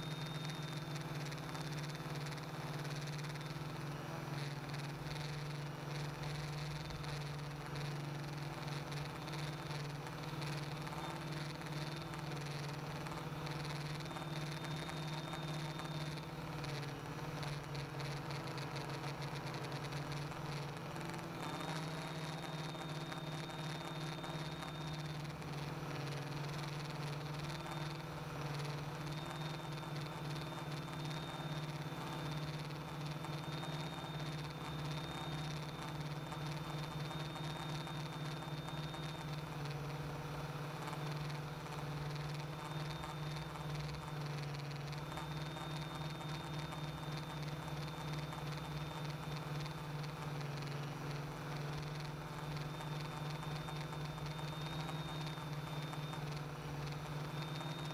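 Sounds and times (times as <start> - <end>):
quadcopter motors humming: 0.0 - 57.9.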